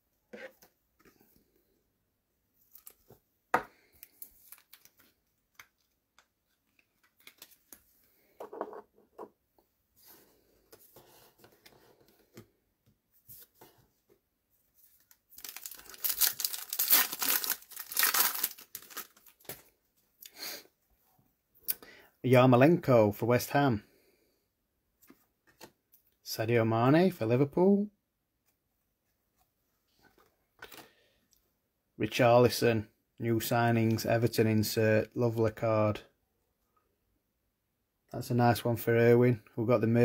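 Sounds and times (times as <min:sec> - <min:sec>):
cards clicking and rustling: 0:04.0 - 0:07.8
card pack wrapper tearing: 0:15.4 - 0:19.6.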